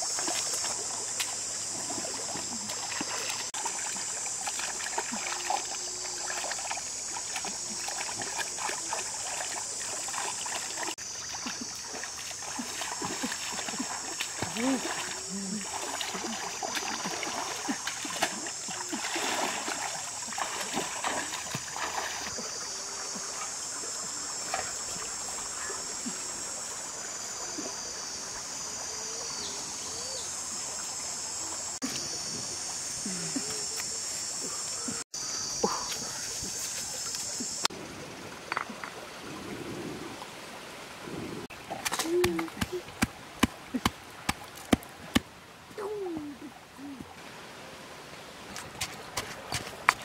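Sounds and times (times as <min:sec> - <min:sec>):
water splashing in a stream: 0:00.0 - 0:35.0, 0:35.9 - 0:50.0
high-pitched hiss: 0:00.0 - 0:37.7.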